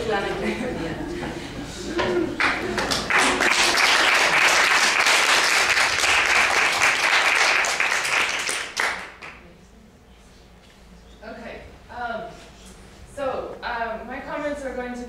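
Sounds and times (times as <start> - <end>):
audience applauding: 2.3 - 9.4.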